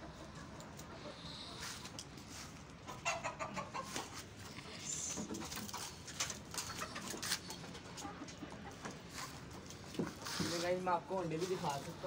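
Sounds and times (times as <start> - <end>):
hens clucking: 0.0 - 12.0.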